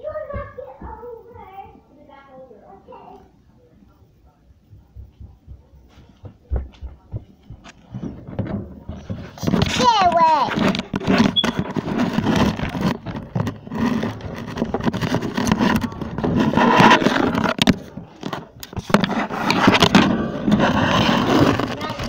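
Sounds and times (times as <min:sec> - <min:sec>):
phone handling rubbing and knocks: 0:07.9 - 0:22.0.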